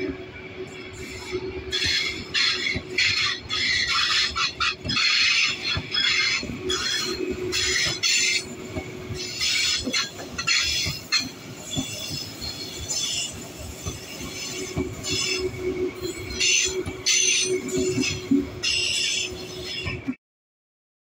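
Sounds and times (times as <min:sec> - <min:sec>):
train wheels squealing on rails: 0:00.0 - 0:20.2.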